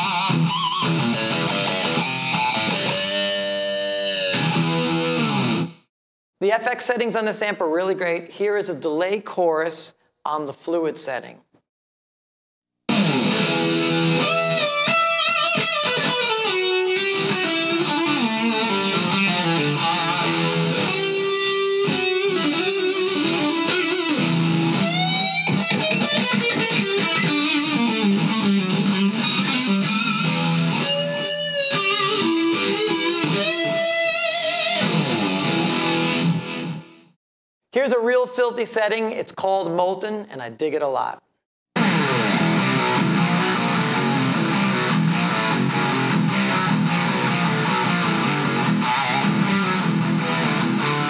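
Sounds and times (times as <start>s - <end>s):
electric guitar lead with delay: 0.0s - 5.8s, 12.9s - 36.9s, 41.8s - 51.0s.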